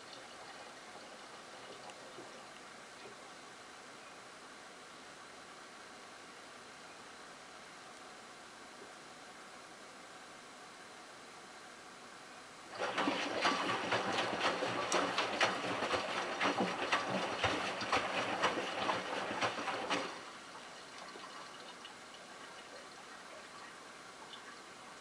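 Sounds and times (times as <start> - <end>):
water sloshing and splashing: 12.7 - 24.6
washing machine drum turning: 12.8 - 20.1.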